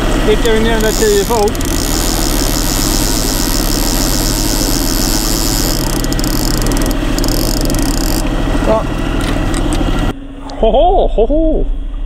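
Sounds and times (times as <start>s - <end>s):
spool whirring: 0.0s - 8.8s
boat engine running: 0.0s - 10.1s.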